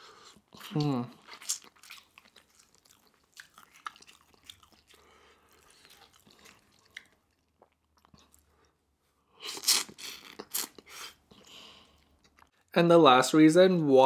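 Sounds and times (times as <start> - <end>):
wet chewing clicks: 0.3 - 8.7
loud wet crackling bite: 0.6 - 8.5.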